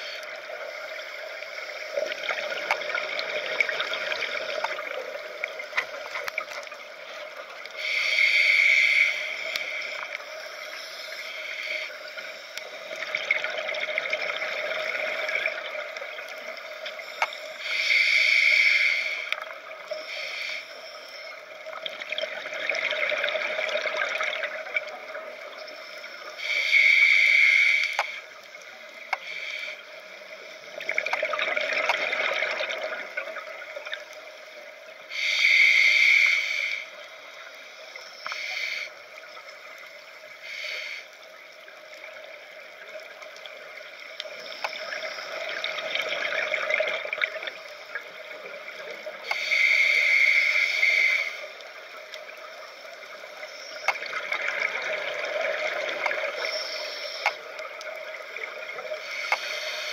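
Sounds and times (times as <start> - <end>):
faint steady hum: 0.0 - 59.9
regulator hissing inhalations: 7.7 - 13.0, 16.4 - 21.4, 25.8 - 28.4, 29.1 - 30.7, 35.0 - 39.4, 40.2 - 41.5, 48.7 - 52.1, 56.2 - 57.6, 58.9 - 59.9
exhaled bubbles gushing: 21.8 - 25.1, 30.8 - 33.6, 44.9 - 49.0, 53.8 - 56.6.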